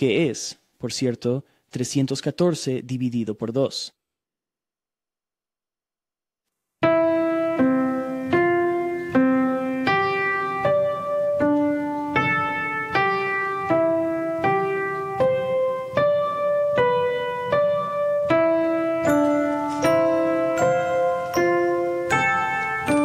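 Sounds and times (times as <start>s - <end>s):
upright piano playing chords: 6.8s - 23.0s.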